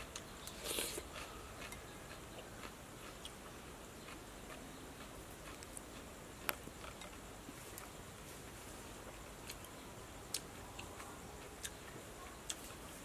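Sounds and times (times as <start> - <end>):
chewing clicks: 4.0 - 7.2.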